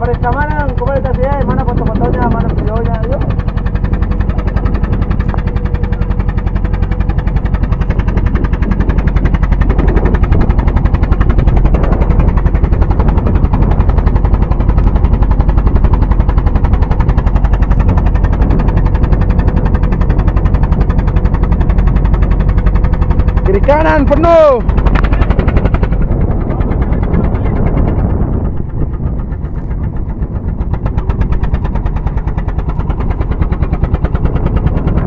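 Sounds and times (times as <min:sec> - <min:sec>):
boat engine running: 0:00.0 - 0:35.0.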